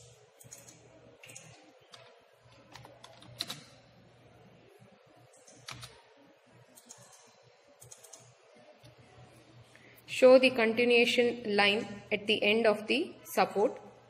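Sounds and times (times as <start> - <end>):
computer keyboard keystrokes: 0.4 - 3.7, 5.4 - 6.0, 7.8 - 8.3.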